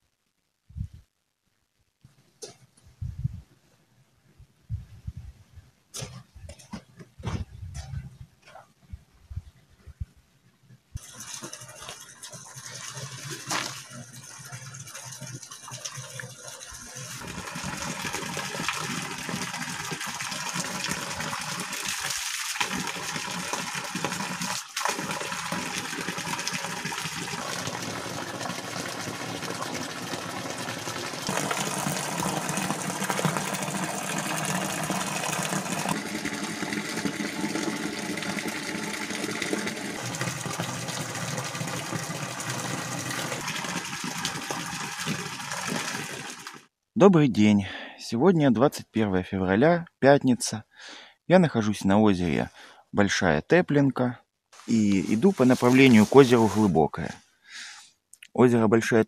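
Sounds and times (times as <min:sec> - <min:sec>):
water gushing into a pool: 0:11.0 - 0:46.7.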